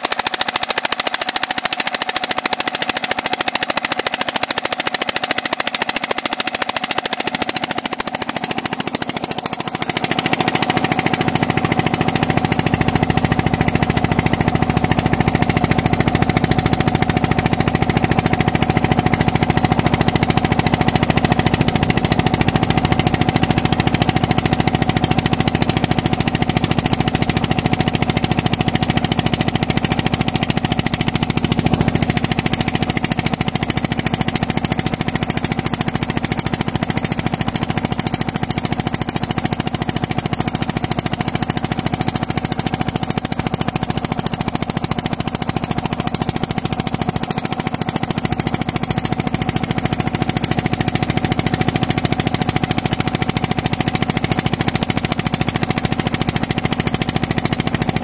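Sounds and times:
diesel engine running with knocking: 0.0s - 58.0s.

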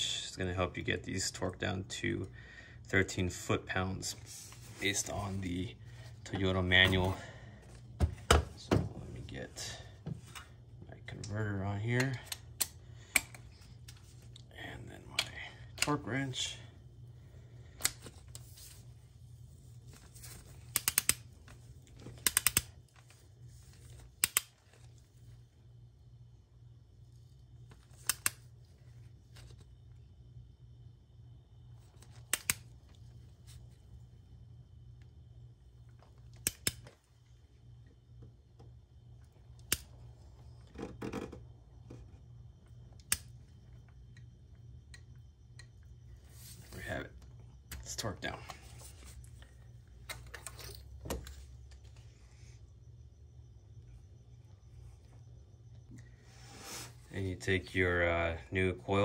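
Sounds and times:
torque wrench ratchet clicks: 20.7s - 21.2s
torque wrench sharp clicks: 20.7s - 21.2s, 22.2s - 22.7s, 24.2s - 24.5s.

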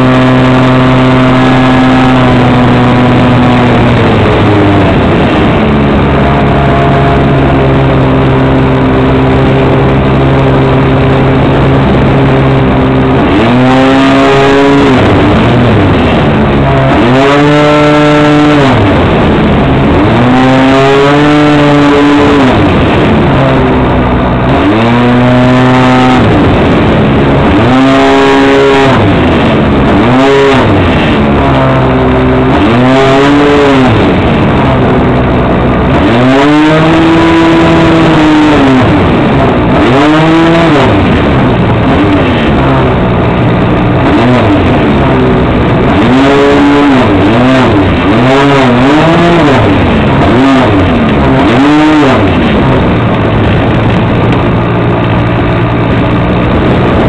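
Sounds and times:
rush of air: 0.0s - 57.0s.

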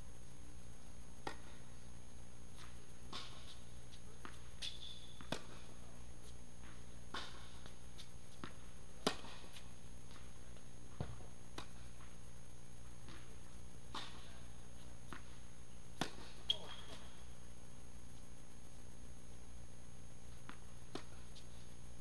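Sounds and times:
steady low hum: 0.0s - 22.0s
ball bouncing: 1.2s - 1.5s, 4.2s - 5.6s, 8.4s - 9.4s, 11.0s - 11.8s, 16.0s - 17.2s
racket hitting tennis ball: 1.2s - 1.6s, 2.6s - 3.6s, 4.2s - 5.8s, 6.6s - 10.3s, 11.0s - 12.1s, 13.9s - 14.5s, 16.0s - 17.2s, 20.3s - 21.4s
shoe squeak: 4.6s - 5.2s, 16.5s - 17.2s.

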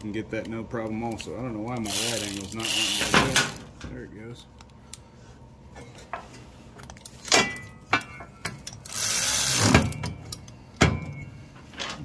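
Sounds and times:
power tool running: 1.8s - 3.6s, 8.8s - 9.9s.

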